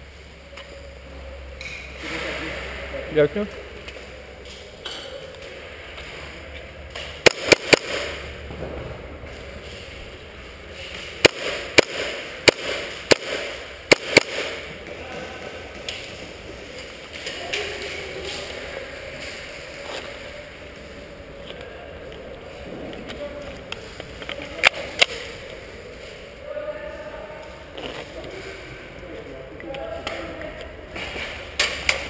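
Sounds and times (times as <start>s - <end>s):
airsoft gun shots echoing: 7.0s - 8.6s, 11.2s - 14.8s.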